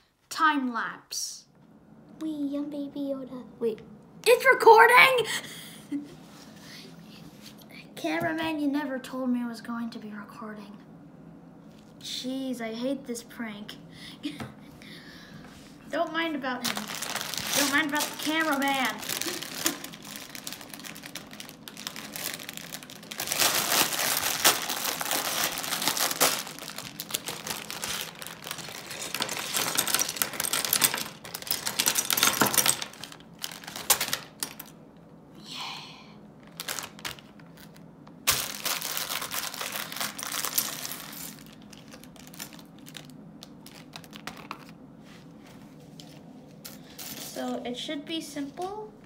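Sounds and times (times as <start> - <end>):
plastic bag crinkling: 16.6 - 34.7, 36.4 - 44.8
plastic bricks clattering: 16.7 - 34.7.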